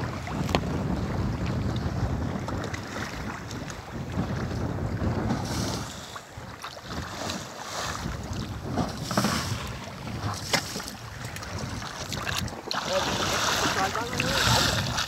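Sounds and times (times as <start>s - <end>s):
sea water splashing along hull: 0.0s - 15.0s
wind buffeting microphone: 0.0s - 15.0s
sharp water slaps: 10.3s - 15.0s.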